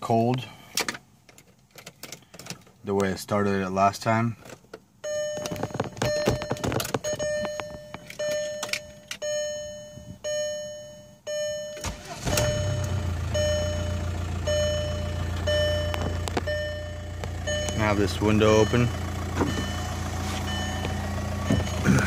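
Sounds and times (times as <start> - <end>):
dashboard warning chime: 5.0 - 22.0
diesel engine starting and idling: 11.8 - 22.0.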